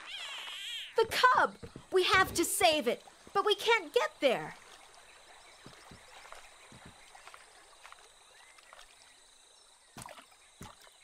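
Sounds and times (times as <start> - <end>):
distant animal sounds: 0.0 - 2.4
soft water: 0.0 - 11.0.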